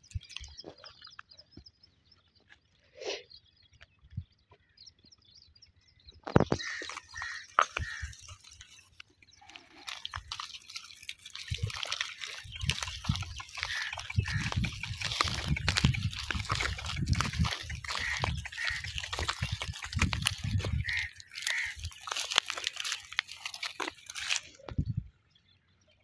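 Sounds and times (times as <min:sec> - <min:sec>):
donkey hooves on dry ground: 0:06.4 - 0:24.7
wind rumble on microphone: 0:12.4 - 0:21.1, 0:24.6 - 0:25.2.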